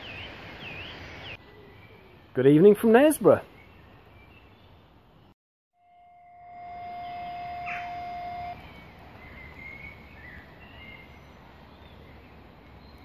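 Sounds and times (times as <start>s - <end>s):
steady high tone: 5.8s - 8.6s
birds chirping: 6.2s - 13.0s.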